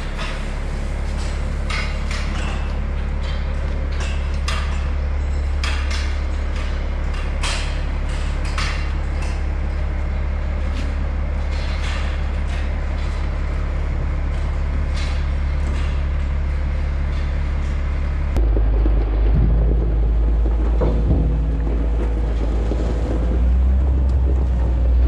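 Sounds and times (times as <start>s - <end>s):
clanks and knocks: 0.0s - 25.0s
low machine hum: 0.0s - 25.0s.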